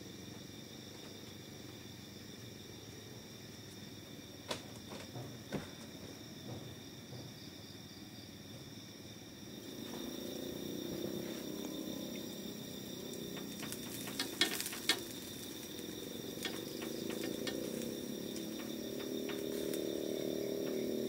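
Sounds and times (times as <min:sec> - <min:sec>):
insect buzzing: 0:00.0 - 0:21.0
meat grilling over charcoal: 0:12.8 - 0:19.8
faint crackling: 0:13.0 - 0:19.9.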